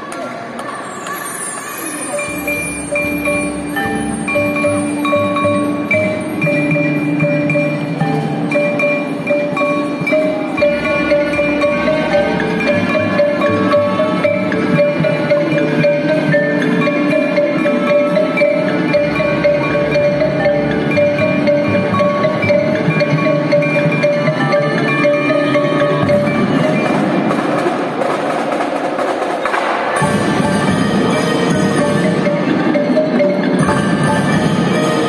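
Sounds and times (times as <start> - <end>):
marimbas and xylophones: 0.6 - 28.6, 29.2 - 35.0
band holding long notes: 30.0 - 35.0.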